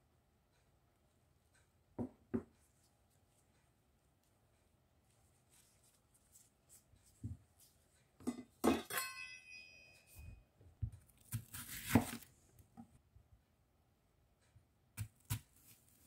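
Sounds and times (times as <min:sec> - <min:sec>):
ringing clink: 0:08.6 - 0:10.4
knife crunching through onion: 0:11.2 - 0:12.4.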